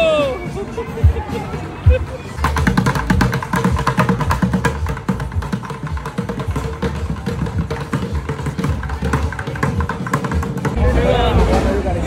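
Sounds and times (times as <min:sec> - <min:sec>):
sticks drumming on plastic buckets: 0:01.9 - 0:10.8.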